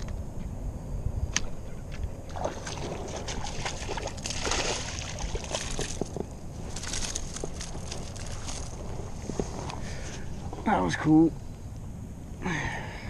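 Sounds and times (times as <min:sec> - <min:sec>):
fish splashing at water surface: 0:02.3 - 0:06.0.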